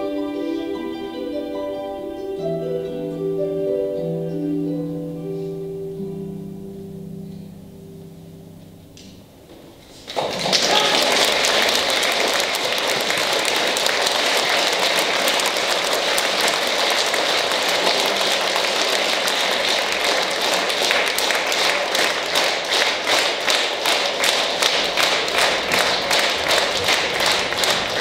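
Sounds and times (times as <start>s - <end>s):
audience applauding: 10.0s - 28.0s.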